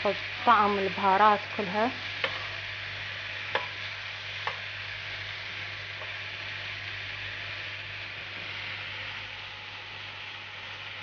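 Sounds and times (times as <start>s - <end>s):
meat sizzling in a frying pan: 0.0s - 11.0s
spatula knocking on pan: 2.2s - 2.5s, 3.5s - 3.8s, 4.4s - 4.7s.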